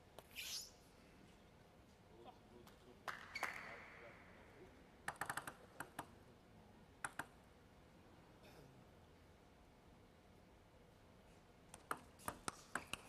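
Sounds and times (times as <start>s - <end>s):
table tennis ball clicking: 5.0s - 6.1s, 11.7s - 13.0s.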